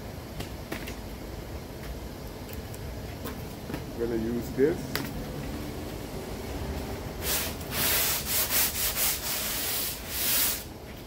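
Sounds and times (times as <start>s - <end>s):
sanding block rasping on filler: 7.2s - 10.7s.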